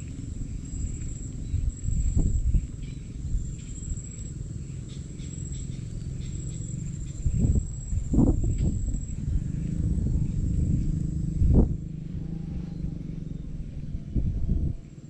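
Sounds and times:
insects trilling: 0.0 - 14.1
low rumble: 0.0 - 15.0.

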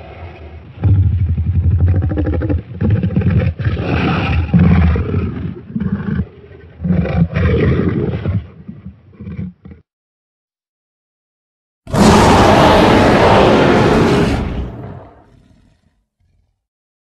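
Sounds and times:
deep rattling dinosaur roars: 11.9 - 16.6.

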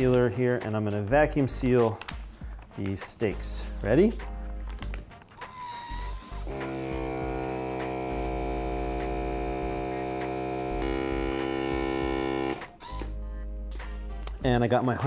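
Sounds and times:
vacuum sealer pump humming: 6.4 - 12.7.

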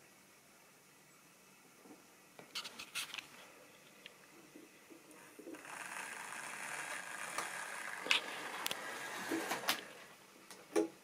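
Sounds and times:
model train running on track: 5.6 - 10.1.

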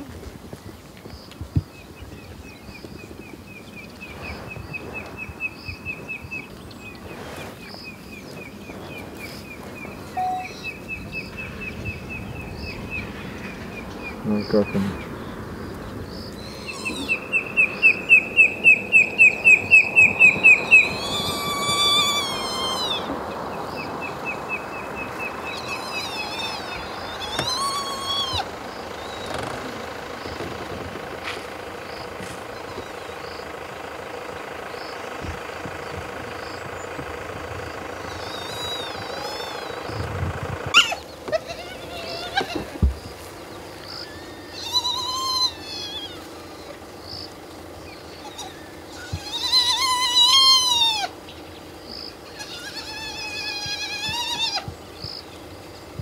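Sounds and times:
hyena cubs whining and squealing: 10.0 - 11.3, 16.2 - 23.9, 25.0 - 30.4, 37.7 - 47.3, 47.9 - 51.3, 52.0 - 54.8
high piping notes: 10.1 - 10.7.

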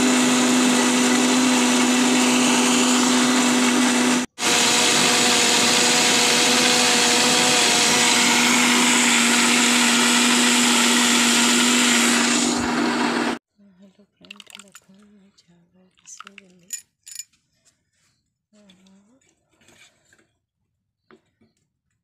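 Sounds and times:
mixer grinder motor whining: 0.0 - 13.4.

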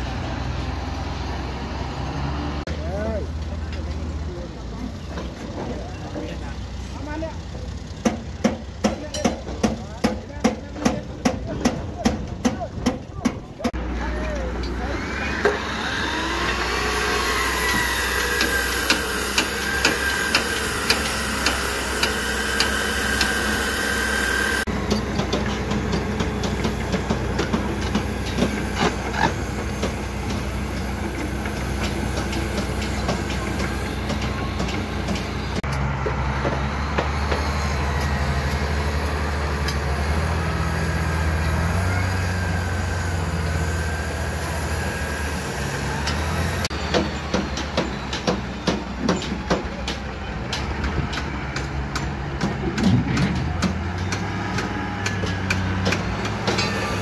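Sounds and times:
low engine hum: 0.0 - 57.0
sharp metallic knocks: 46.1 - 57.0.

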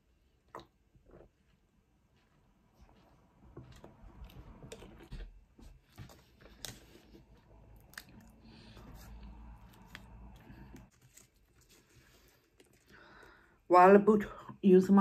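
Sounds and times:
close-up chewing: 3.7 - 13.0.

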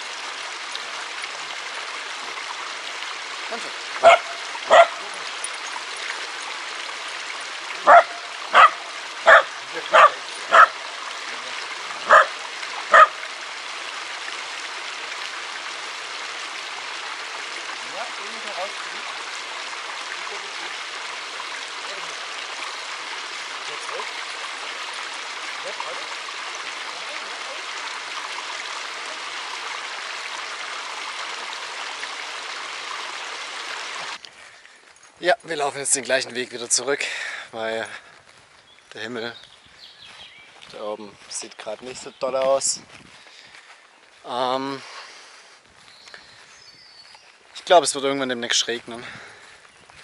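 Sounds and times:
shallow stream rushing: 0.0 - 34.7
creek running over stones: 0.0 - 50.0
small dog barking: 4.0 - 5.1, 7.8 - 10.8, 12.0 - 13.2.

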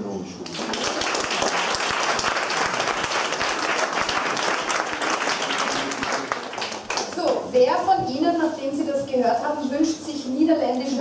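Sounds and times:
audience applauding: 0.4 - 7.5.

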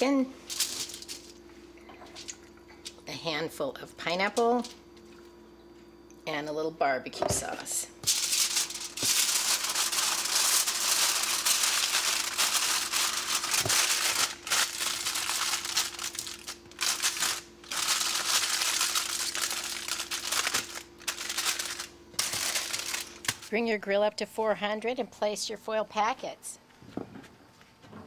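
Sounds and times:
aluminum foil crinkling: 0.4 - 1.4, 8.0 - 23.6.

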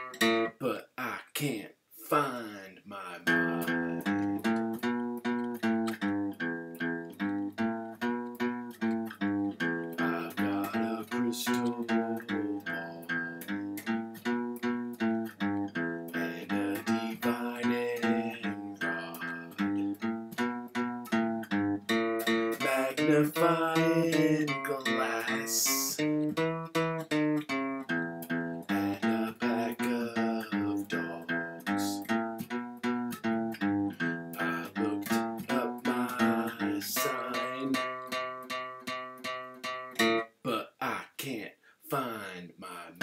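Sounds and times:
guitar plucking quick notes: 0.0 - 0.6, 3.2 - 40.3.

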